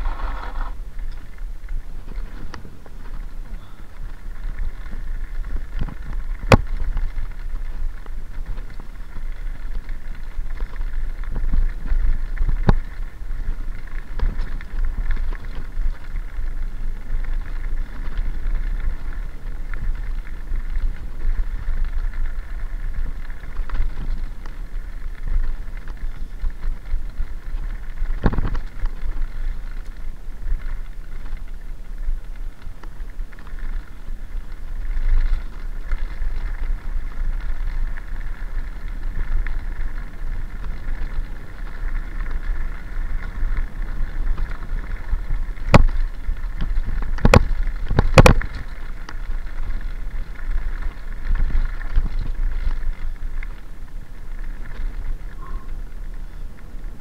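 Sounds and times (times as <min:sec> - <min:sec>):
bike tyres rumbling on gravel: 0:00.0 - 0:57.0
wind on microphone: 0:00.0 - 0:57.0
bike knocks and rattles: 0:34.8 - 0:53.2.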